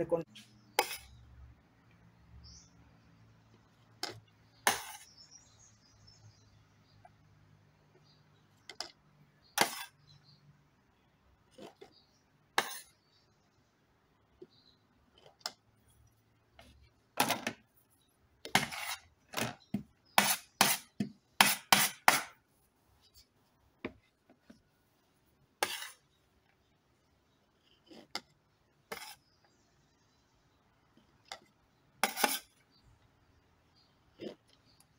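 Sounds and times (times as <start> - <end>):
metal spoon clinking and scraping: 25.6 - 26.0, 32.0 - 32.6.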